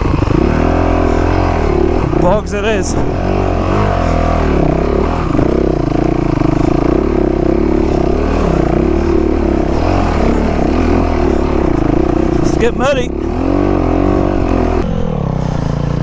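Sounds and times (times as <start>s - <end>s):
dirt bike engine revving: 0.0s - 16.0s.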